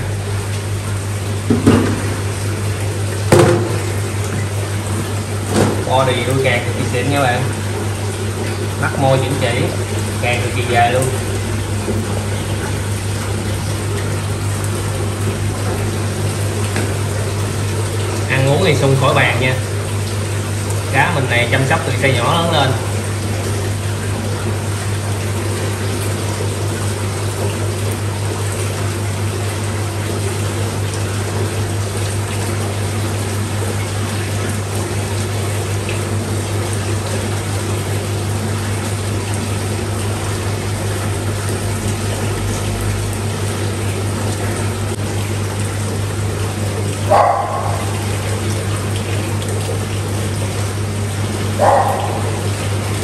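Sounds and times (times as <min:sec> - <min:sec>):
moving water: 0:00.0 - 0:53.0
water pump electric hum: 0:00.0 - 0:53.0
dog barking: 0:47.1 - 0:47.9, 0:51.6 - 0:52.4.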